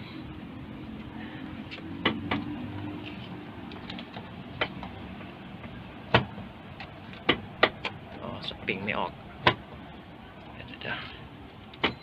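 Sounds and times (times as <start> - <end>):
hand tapping truck door: 4.2 - 8.0.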